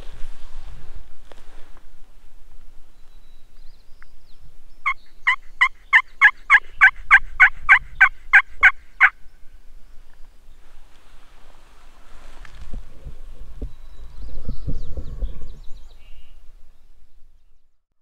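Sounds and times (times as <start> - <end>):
wild turkey yelping: 4.8 - 9.2.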